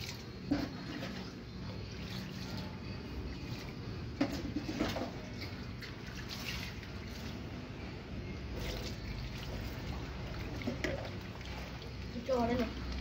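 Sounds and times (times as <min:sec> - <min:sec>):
water pouring from a jug: 0:03.5 - 0:07.5, 0:08.5 - 0:13.0.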